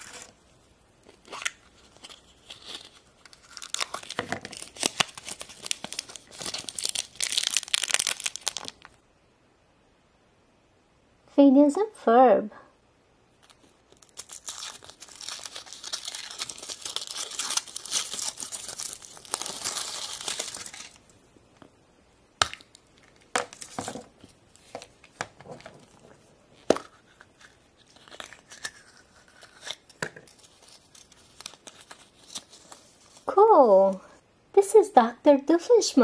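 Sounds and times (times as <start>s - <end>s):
foil wrapper crinkling: 1.0s - 9.0s, 13.4s - 21.1s, 22.7s - 33.3s
chocolate shell cracking: 1.1s - 9.0s, 22.4s - 24.0s.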